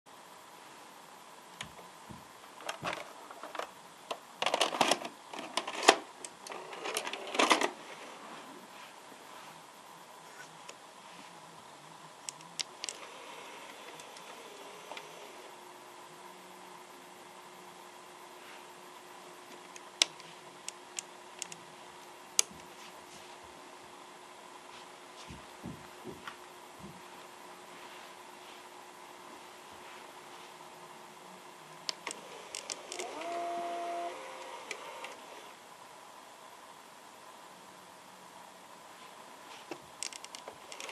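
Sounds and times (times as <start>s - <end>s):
faint steady hum: 0.1s - 40.9s
mechanical clatter of cassette loading: 2.6s - 7.8s, 31.9s - 35.3s.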